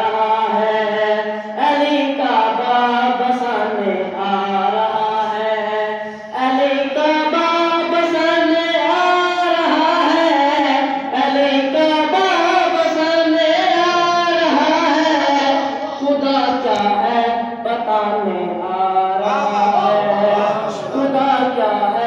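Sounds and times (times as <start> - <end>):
boy singing into a microphone: 0.0 - 22.0.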